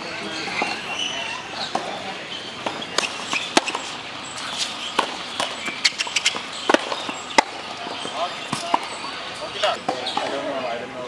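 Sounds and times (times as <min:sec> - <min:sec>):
tennis balls struck and bouncing: 0:00.3 - 0:10.6.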